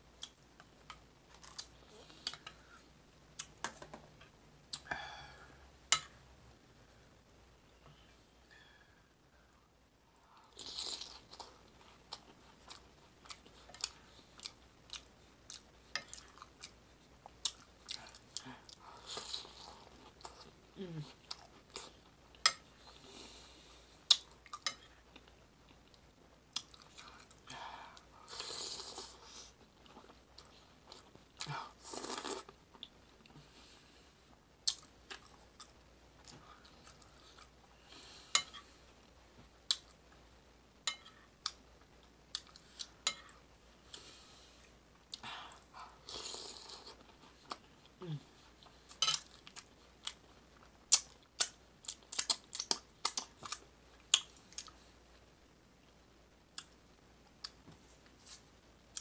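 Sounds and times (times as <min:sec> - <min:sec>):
chewing and crunching food: 0:10.4 - 0:27.5, 0:40.9 - 0:55.3.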